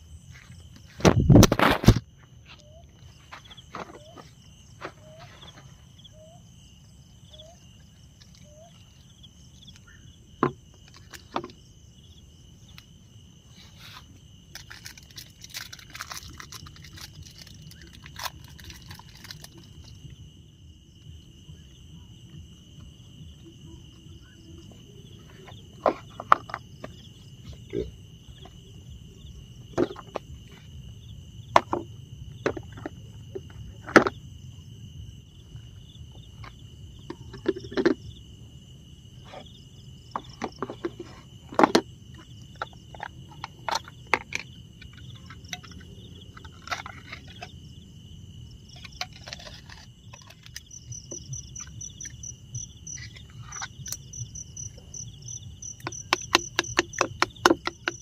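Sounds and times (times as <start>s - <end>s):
insects singing: 0.0s - 58.0s
sharp clicks and knocks: 55.8s - 58.0s.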